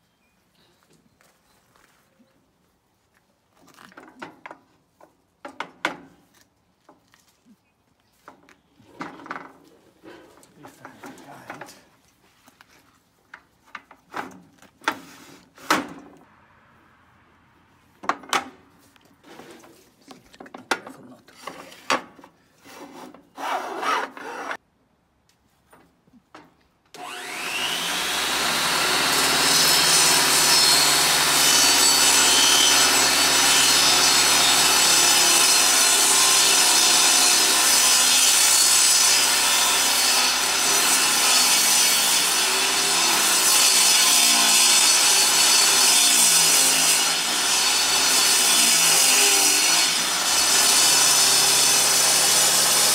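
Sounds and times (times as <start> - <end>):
saw blade cutting board: 22.6 - 24.6, 27.0 - 52.9
table saw motor running: 27.0 - 35.0.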